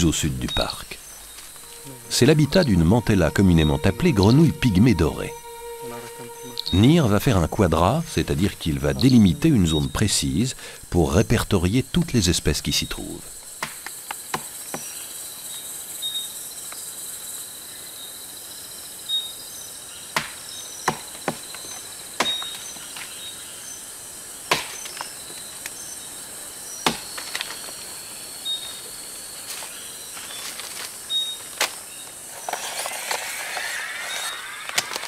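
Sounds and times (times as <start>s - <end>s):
high insect buzz: 0.0s - 11.0s, 12.7s - 35.0s
short high chirps: 1.2s - 10.0s.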